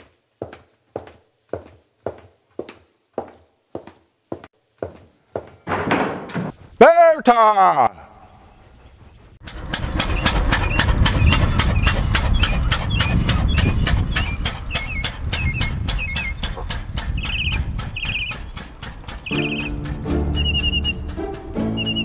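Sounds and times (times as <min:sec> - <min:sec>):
single-cylinder engine chugging: 0:09.4 - 0:22.0.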